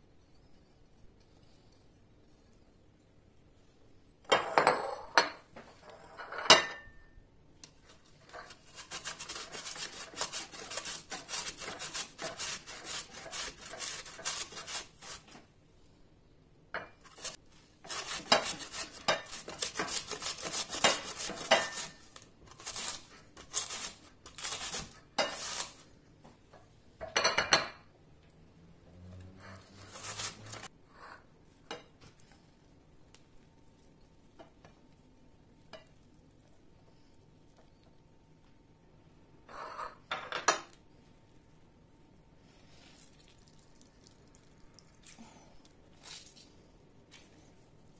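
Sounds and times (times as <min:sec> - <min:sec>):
potato grated on metal grater: 0:08.4 - 0:15.4, 0:17.1 - 0:25.8, 0:29.6 - 0:30.7.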